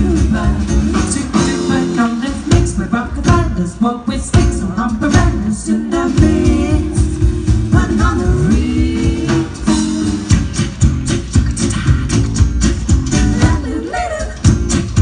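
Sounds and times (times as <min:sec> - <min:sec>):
women singing in harmony: 0:00.0 - 0:03.6, 0:04.5 - 0:09.8, 0:13.3 - 0:14.5
double bass: 0:00.0 - 0:15.0
drums: 0:00.0 - 0:15.0.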